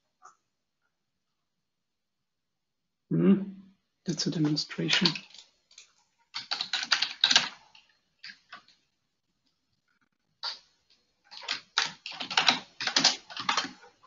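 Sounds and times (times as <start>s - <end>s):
typing on computer keyboard: 4.4s - 8.8s, 10.4s - 10.7s, 11.3s - 13.9s.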